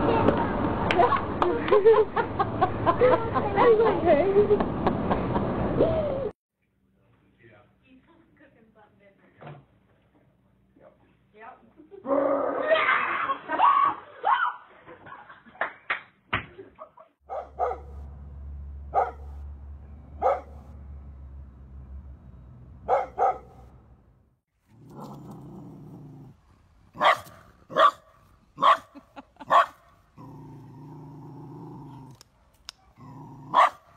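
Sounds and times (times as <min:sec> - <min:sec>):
dog barking: 0:17.3 - 0:18.0, 0:18.9 - 0:19.4, 0:20.2 - 0:20.7, 0:22.8 - 0:23.7, 0:27.0 - 0:29.8, 0:32.8 - 0:33.9
dog growling: 0:24.7 - 0:27.0, 0:30.1 - 0:32.2, 0:32.9 - 0:33.9.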